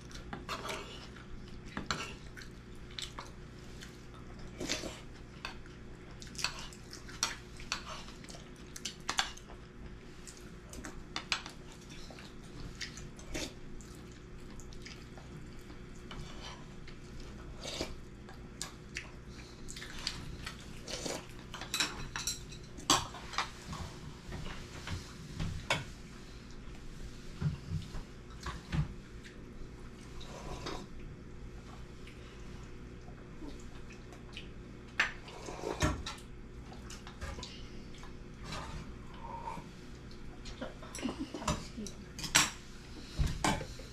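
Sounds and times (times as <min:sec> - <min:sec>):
low steady hum: 0:00.0 - 0:43.9
utensils clinking on dishes: 0:21.5 - 0:23.5.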